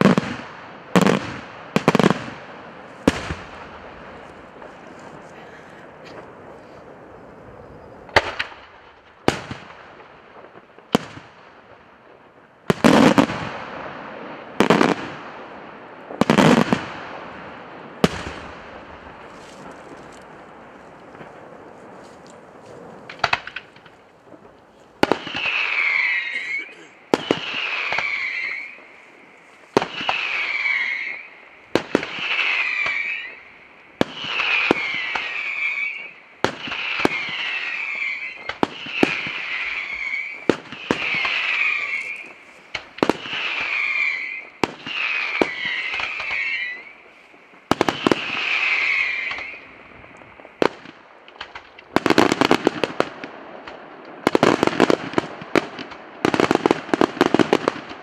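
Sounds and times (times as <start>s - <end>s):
firecrackers crackling: 0.0s - 58.0s
firework bangs: 0.0s - 58.0s
falling whistle: 25.4s - 28.8s, 37.5s - 42.4s, 45.5s - 47.0s.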